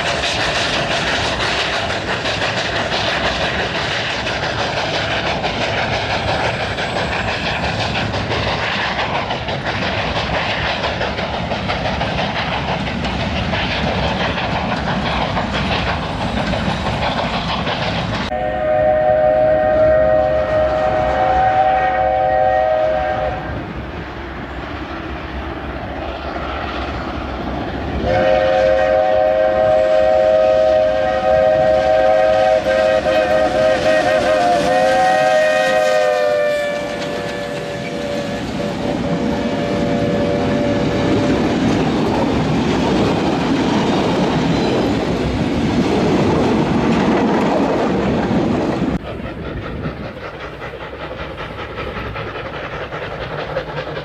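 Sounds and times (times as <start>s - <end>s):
steam locomotive chime whistle: 18.3s - 23.6s, 28.0s - 41.4s.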